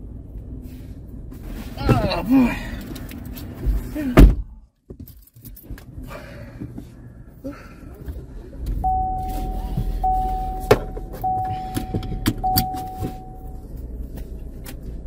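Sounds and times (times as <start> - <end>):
car engine starting and idling: 5.5 - 15.0
dashboard warning chime beeps: 8.8 - 13.6.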